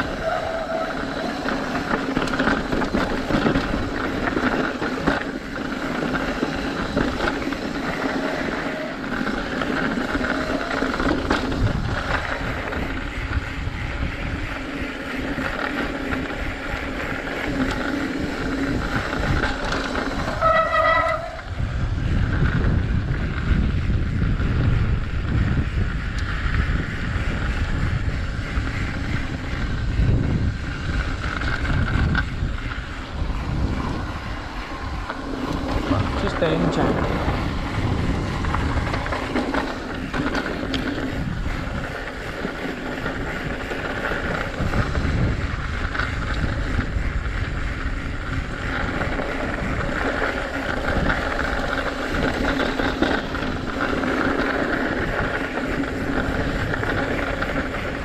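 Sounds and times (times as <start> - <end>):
bike rattling: 0.0 - 58.0
bike tyres rolling: 0.0 - 58.0
wavering hum: 0.0 - 58.0
wind rumble on microphone: 0.0 - 58.0.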